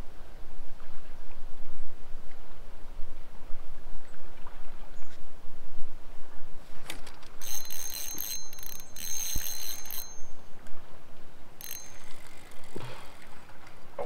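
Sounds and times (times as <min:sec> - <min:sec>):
high metallic ringing: 0:07.4 - 0:10.6, 0:11.6 - 0:12.7.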